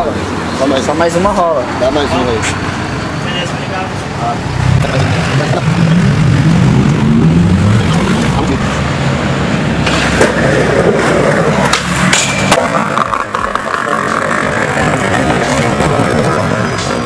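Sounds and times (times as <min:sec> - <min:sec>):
skateboard wheels rolling on concrete: 0:03.4 - 0:17.0
skateboard trucks grinding rail: 0:04.8 - 0:17.0
skateboard clacks: 0:09.8 - 0:17.0.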